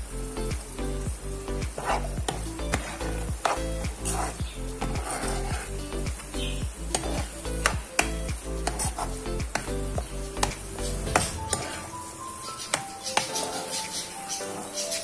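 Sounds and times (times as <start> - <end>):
light sizzle: 0.0 - 15.0
spoon scraping a frying pan: 1.8 - 6.0, 6.8 - 9.8, 10.4 - 11.9, 12.6 - 15.0.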